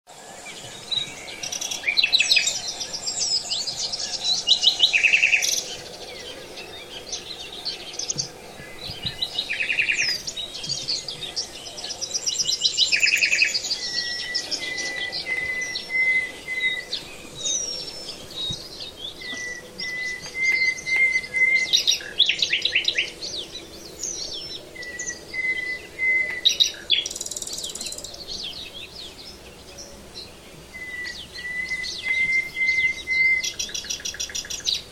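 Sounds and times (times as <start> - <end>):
songbirds singing: 0.1 - 34.9.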